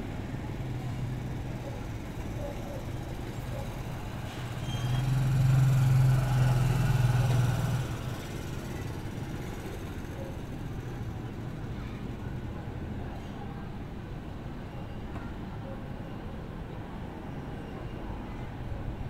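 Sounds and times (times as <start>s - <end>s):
low traffic rumble: 0.0s - 19.0s
passing vehicle engine drone: 4.4s - 9.0s.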